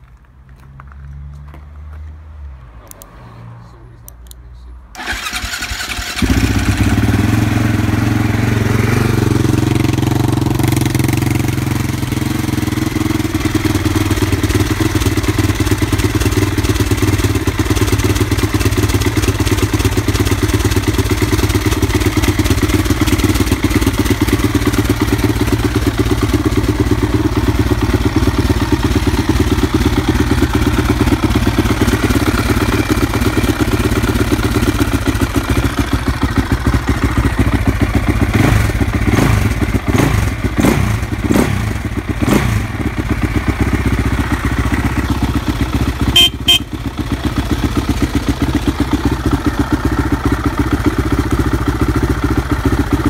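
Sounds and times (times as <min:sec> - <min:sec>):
motorcycle engine starting and idling: 0:04.2 - 0:53.0.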